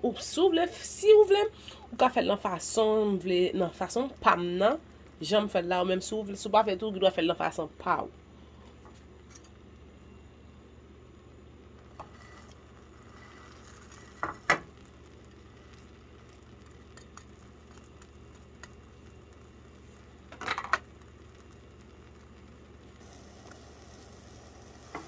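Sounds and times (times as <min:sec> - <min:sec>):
bread frying sizzle: 0:00.2 - 0:07.6, 0:08.9 - 0:25.0
metal spatula scraping a pan: 0:12.0 - 0:14.2.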